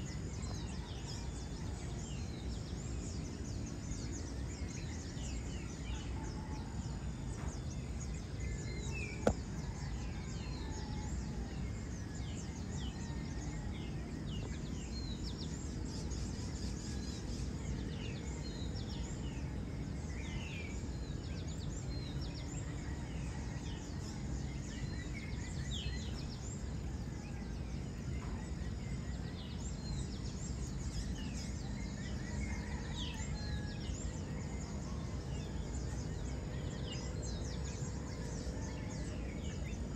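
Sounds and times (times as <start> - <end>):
low background rush: 0.0 - 39.9
birds chirping: 11.6 - 39.9.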